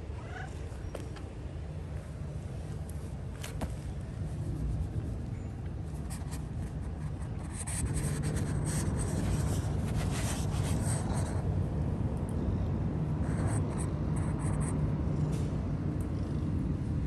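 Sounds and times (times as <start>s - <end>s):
steady low rumble: 1.4s - 17.0s
hand stroking cat fur: 3.4s - 5.3s, 6.0s - 11.1s.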